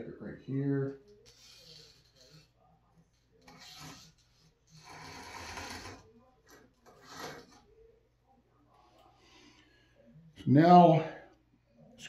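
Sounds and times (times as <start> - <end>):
grinding wheel scraping steel: 4.8 - 6.0, 6.9 - 7.6.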